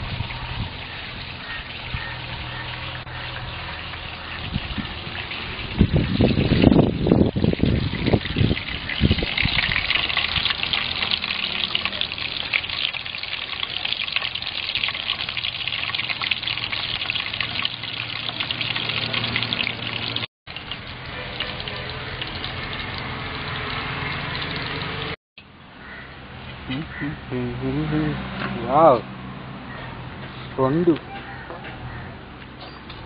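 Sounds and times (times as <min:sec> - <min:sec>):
crab sizzling in hot oil: 0:08.8 - 0:24.9.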